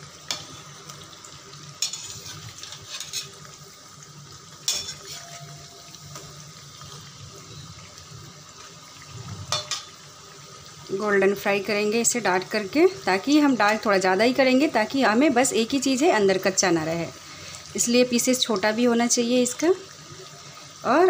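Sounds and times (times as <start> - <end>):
pakoras sizzling in hot oil: 0.0 - 21.0
metal spoon scraping a pan: 1.8 - 3.6, 4.6 - 6.3, 9.5 - 10.0.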